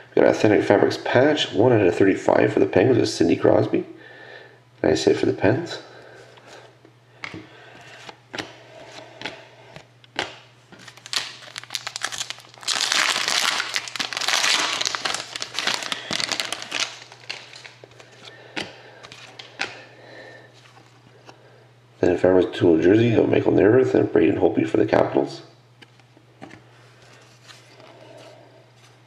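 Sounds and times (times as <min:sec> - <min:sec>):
cards clicking and sliding: 0:07.2 - 0:11.5
wrapper crinkling: 0:10.8 - 0:18.3, 0:19.0 - 0:19.8.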